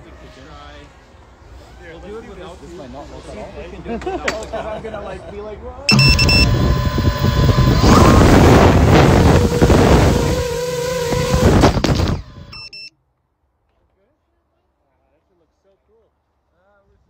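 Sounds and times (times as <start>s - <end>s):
short electronic beeps: 5.9s - 8.4s, 12.5s - 12.9s
drone motors rushing: 5.9s - 12.8s.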